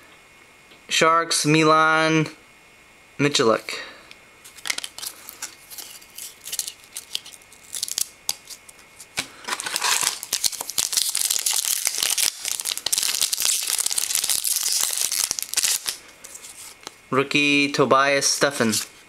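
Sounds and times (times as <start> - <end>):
foil wrapper crinkling and tearing: 4.5 - 17.0
trading cards rustling and clicking: 4.5 - 17.0.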